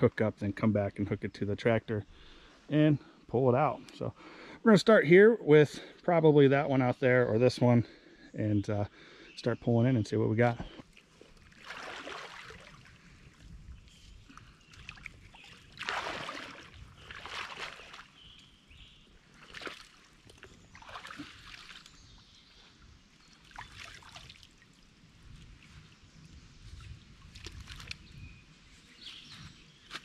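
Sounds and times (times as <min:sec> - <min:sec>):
water splashing and sloshing: 0:10.8 - 0:22.0, 0:23.3 - 0:26.0, 0:26.6 - 0:28.1.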